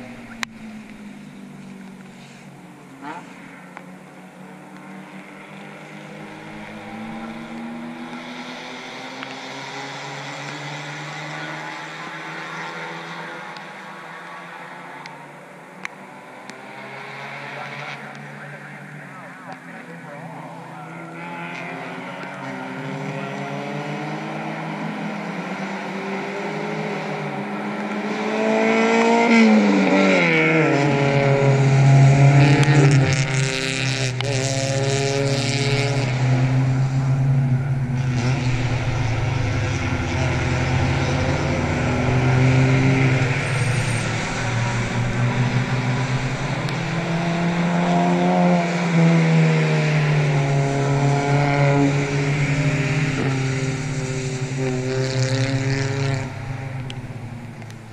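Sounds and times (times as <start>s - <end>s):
race car engines droning: 0.0s - 57.9s
race car passing by: 16.0s - 57.9s.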